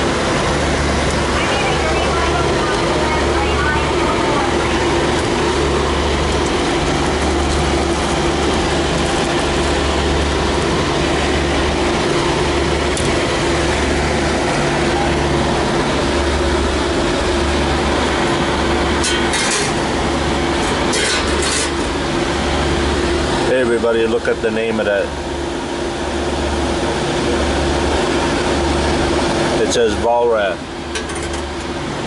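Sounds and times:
machinery droning: 0:00.0 - 0:32.0.

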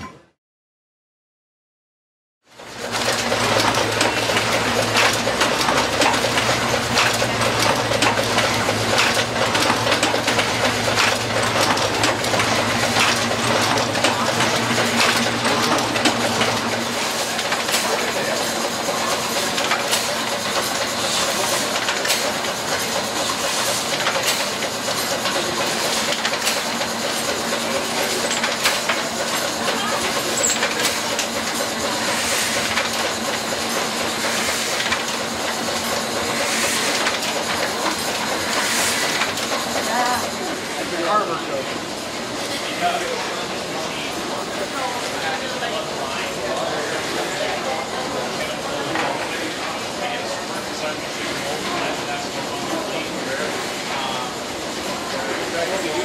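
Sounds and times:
printing presses clattering: 0:02.5 - 0:56.0.

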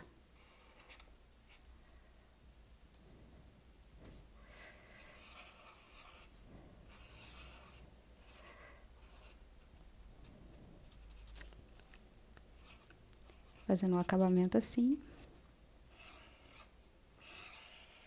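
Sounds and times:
marker pen on paper: 0:00.3 - 0:01.7, 0:04.9 - 0:10.0, 0:10.8 - 0:18.0.

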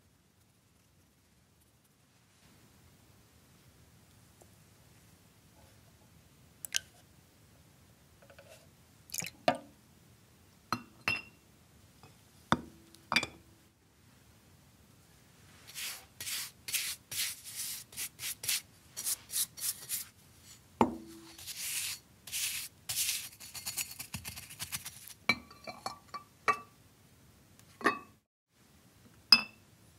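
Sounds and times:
brush scrubbing metal: 0:15.7 - 0:20.2, 0:21.2 - 0:25.2.

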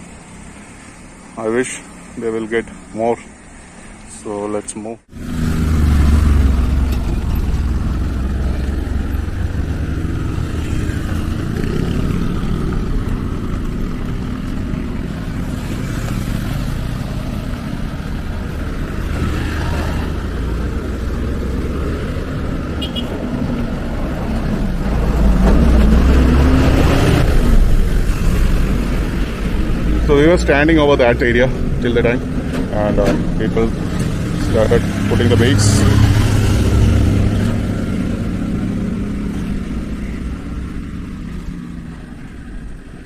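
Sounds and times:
vehicles and motorcycles passing: 0:00.0 - 0:43.0.

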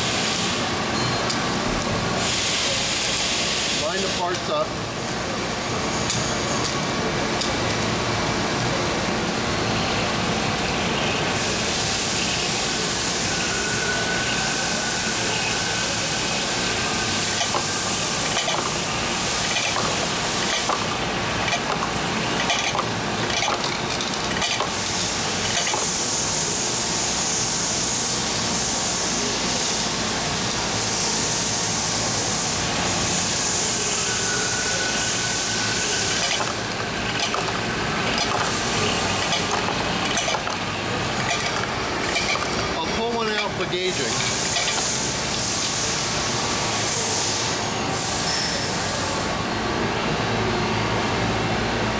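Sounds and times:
faint grinder whine: 0:00.0 - 0:30.0, 0:30.6 - 0:49.0.

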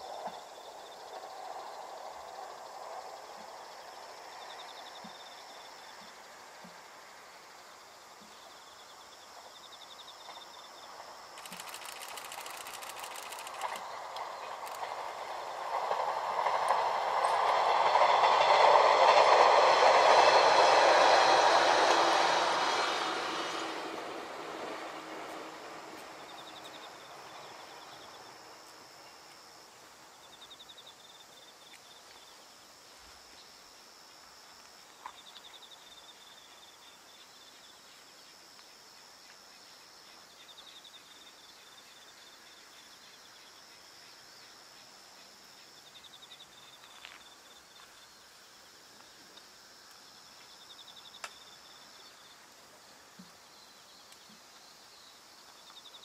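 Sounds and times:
passing train rumble: 0:00.0 - 0:06.6, 0:10.9 - 0:29.1
lower pulsed insect trill: 0:07.6 - 0:23.1, 0:25.5 - 0:48.8, 0:49.6 - 0:56.0
high insect trill: 0:07.6 - 0:56.0
faint sharp clicks: 0:11.4 - 0:14.9, 0:51.2 - 0:51.4.

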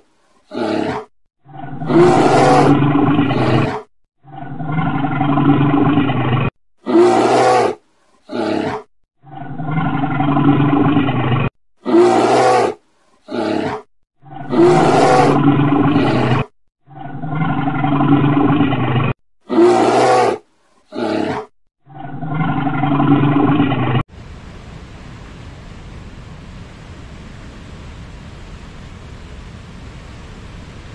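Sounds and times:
large animal roaring: 0:00.5 - 0:24.0.

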